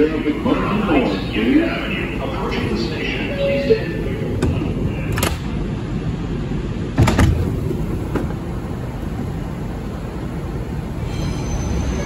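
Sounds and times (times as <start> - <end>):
subway train rumble: 0.0 - 12.0.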